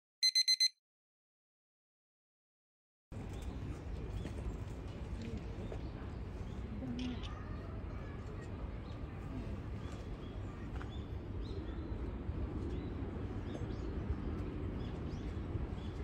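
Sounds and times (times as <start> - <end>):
faint distant voices: 3.2 - 12.3.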